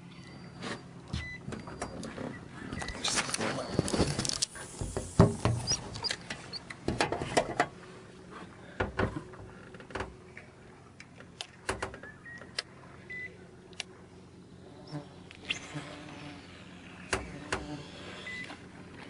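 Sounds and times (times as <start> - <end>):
light clicks and knocks on boat: 0.1 - 14.0.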